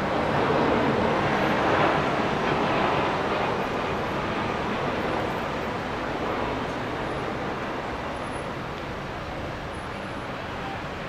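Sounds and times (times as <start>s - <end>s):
jet airliner passing overhead: 0.0s - 8.6s.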